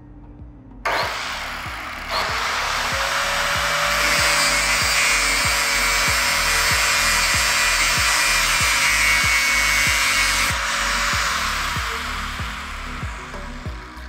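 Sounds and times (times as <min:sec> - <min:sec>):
background music with steady beat: 0:00.0 - 0:14.0
electric grinder grinding metal: 0:00.9 - 0:14.0.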